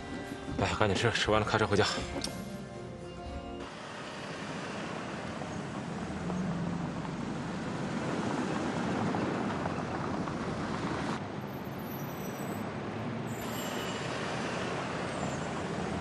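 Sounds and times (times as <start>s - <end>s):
car engine pulling away: 3.6s - 11.2s.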